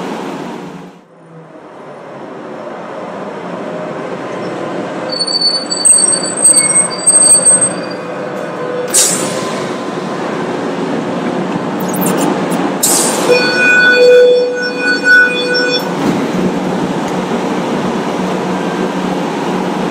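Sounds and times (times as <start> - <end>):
tram rumbling on rails: 0.0 - 19.9
steel wheels squealing: 4.4 - 9.8, 11.8 - 16.8.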